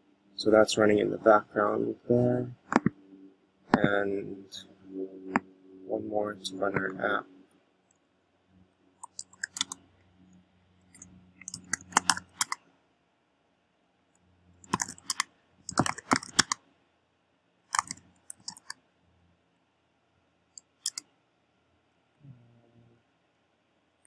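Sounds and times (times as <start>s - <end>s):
keyboard typing: 2.6s - 3.0s, 9.0s - 9.8s, 10.8s - 12.6s, 14.6s - 16.6s, 17.7s - 18.8s, 20.6s - 21.0s.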